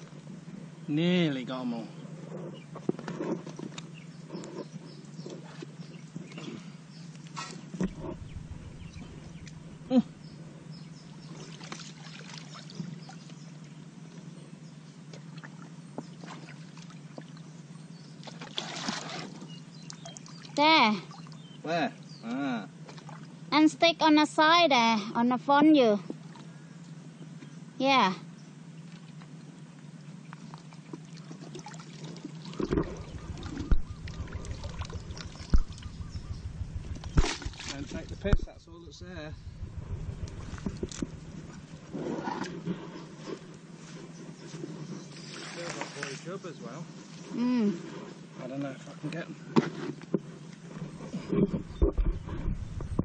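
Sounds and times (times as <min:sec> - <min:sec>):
steady low hum: 0:00.0 - 0:53.0
water trickling and splashing: 0:11.2 - 0:13.4, 0:18.2 - 0:21.5, 0:30.4 - 0:36.2, 0:45.1 - 0:46.4
bucket dipped in water: 0:18.2 - 0:21.3, 0:30.5 - 0:36.2, 0:36.8 - 0:38.4.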